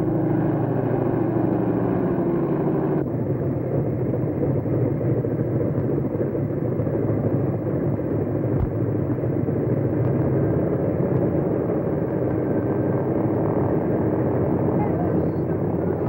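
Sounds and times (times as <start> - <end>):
propeller plane engines taxiing: 0.0 - 16.0.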